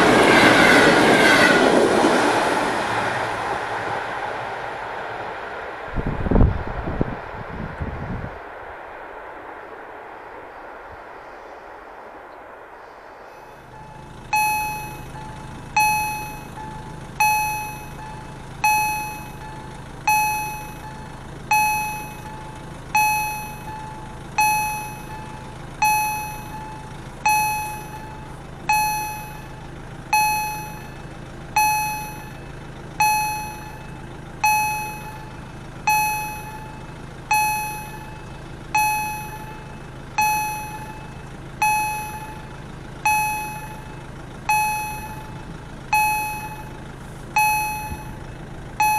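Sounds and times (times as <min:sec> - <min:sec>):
low hum: 0:00.0 - 0:48.9
level crossing warning bell: 0:13.4 - 0:48.9.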